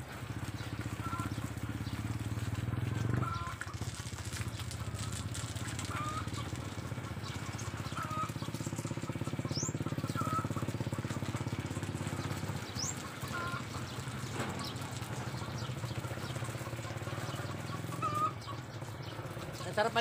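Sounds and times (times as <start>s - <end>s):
water spraying from garden hose: 0.0s - 20.0s
low pulsing motor throb: 4.3s - 20.0s.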